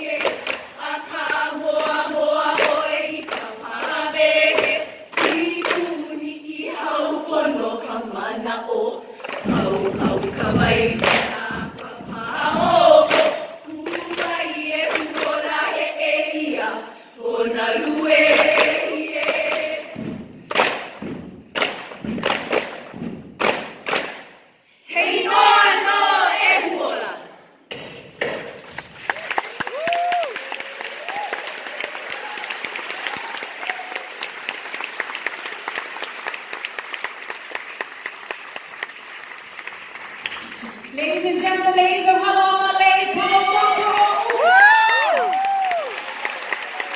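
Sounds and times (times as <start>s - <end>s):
group chanting in unison: 0.0s - 20.0s, 24.8s - 27.5s
gourd drum beats: 9.3s - 15.8s, 17.7s - 24.5s
audience applauding: 28.6s - 40.9s, 43.9s - 46.9s.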